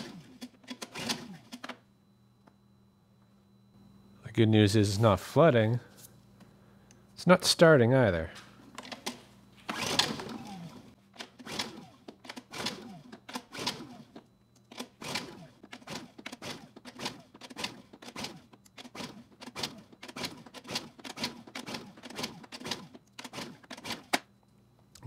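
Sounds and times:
generator recoil starter pulls: 8.8 - 24.2.

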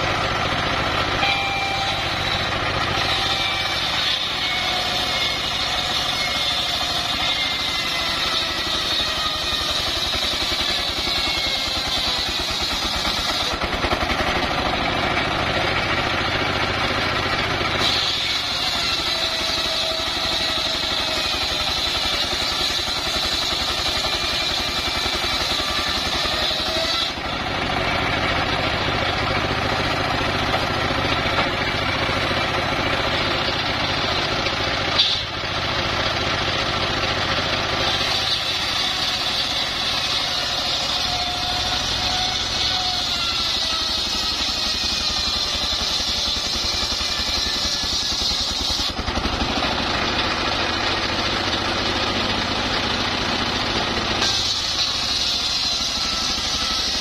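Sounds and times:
circular saw whine: 0.0 - 57.0
diesel engine running: 0.0 - 57.0.

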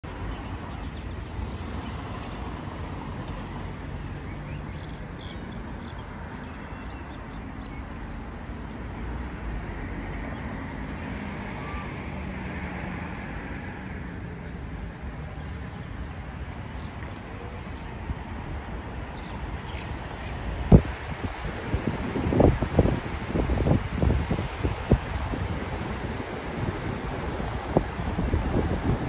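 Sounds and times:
road traffic hum: 0.0 - 29.0
birds chirping: 4.1 - 8.6, 14.4 - 18.2, 19.0 - 20.4
wind buffeting microphone: 13.4 - 29.0.

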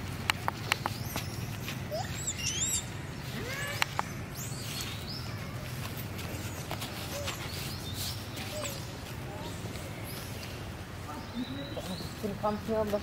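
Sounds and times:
animal squeaks and chirps: 0.9 - 5.4
sharp clicks: 3.7 - 4.2.

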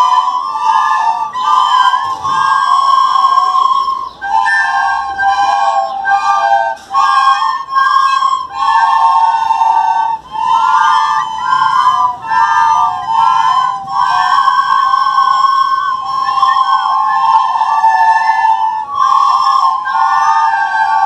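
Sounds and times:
children playing recorders: 0.0 - 21.0.

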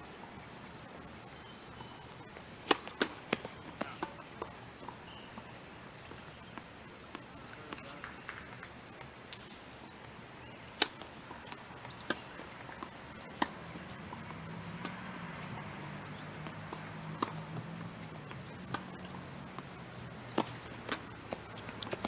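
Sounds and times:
faint hiss: 0.0 - 22.0
tennis ball impacts: 2.6 - 8.6, 10.7 - 22.0.

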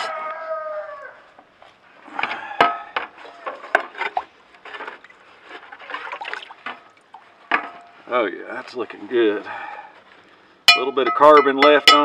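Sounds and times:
water trickling and sloshing: 3.0 - 8.0.

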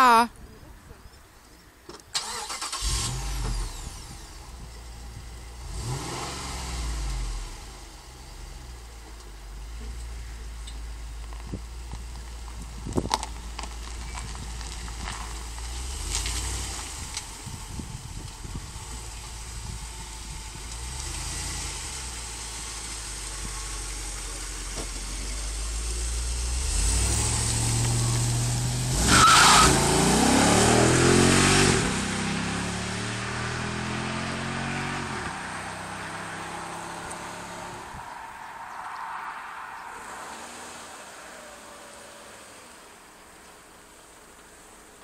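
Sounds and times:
car engine accelerating: 2.2 - 45.0.

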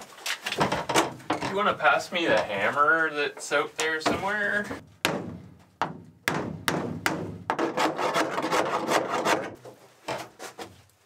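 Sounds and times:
hammer knocking on wood: 4.0 - 7.9.

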